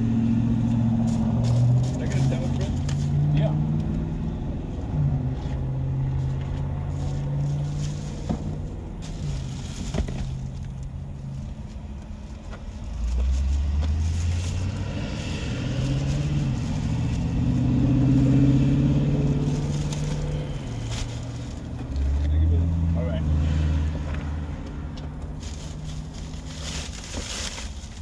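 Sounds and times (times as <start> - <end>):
vehicle engine hum: 0.0 - 28.0
plastic bags rustling: 6.9 - 17.8, 19.2 - 21.8, 25.2 - 28.0.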